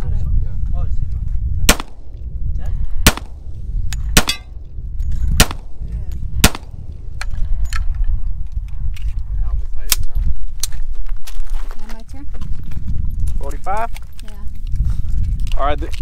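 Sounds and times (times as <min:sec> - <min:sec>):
handgun shots: 0:01.7 - 0:02.1, 0:03.1 - 0:03.4, 0:04.2 - 0:04.5, 0:05.4 - 0:05.7, 0:06.4 - 0:06.8.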